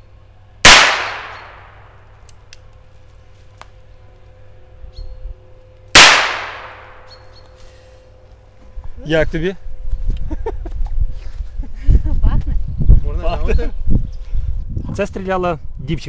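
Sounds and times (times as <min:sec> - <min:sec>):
revolver shots: 0:00.7 - 0:01.8.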